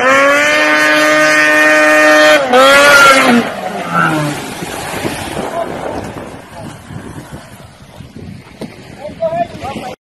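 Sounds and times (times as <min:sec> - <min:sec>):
small engine at high revs: 0:00.0 - 0:05.2
water noise: 0:00.0 - 0:10.0
wind: 0:00.0 - 0:10.0.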